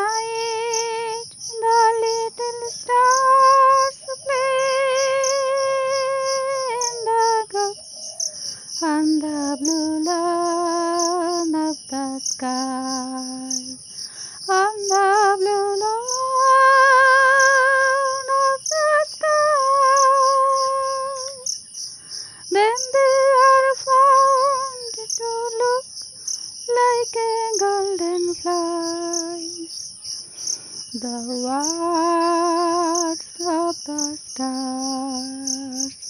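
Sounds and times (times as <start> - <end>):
person humming a slow melody: 0.0 - 7.8, 8.8 - 13.8, 14.4 - 21.4, 26.8 - 29.7, 30.9 - 36.0
crickets chirping: 0.0 - 36.0.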